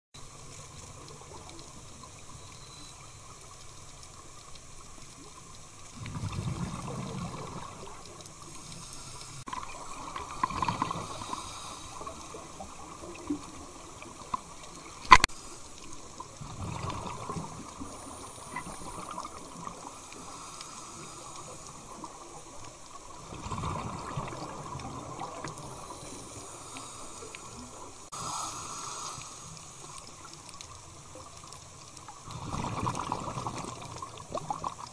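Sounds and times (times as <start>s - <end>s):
faint steady hiss: 0.2s - 34.9s
exhaled bubbles underwater: 5.3s - 8.6s, 9.5s - 15.1s, 16.1s - 20.3s, 21.4s - 28.1s, 29.8s - 34.9s.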